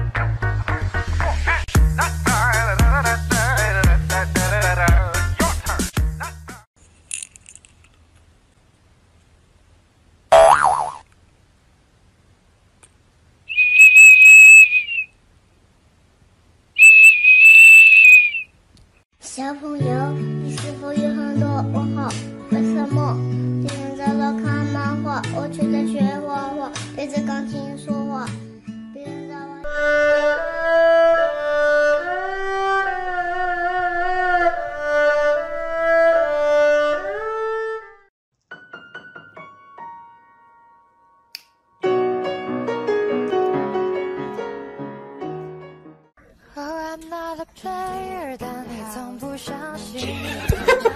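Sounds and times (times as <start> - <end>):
plastic toy whistle: 13.5 - 15.1, 16.8 - 18.5.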